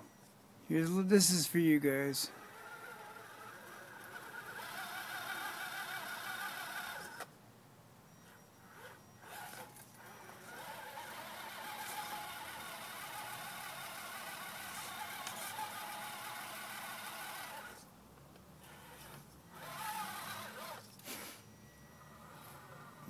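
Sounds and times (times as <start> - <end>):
electric motor whining: 2.3 - 7.3, 8.6 - 17.8, 18.6 - 21.0, 21.7 - 23.0.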